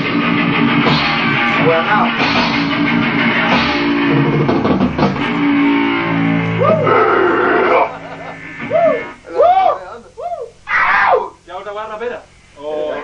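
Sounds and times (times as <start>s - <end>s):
sharp drum hits: 0.0s - 6.7s
electric guitar rock jam: 0.0s - 9.3s.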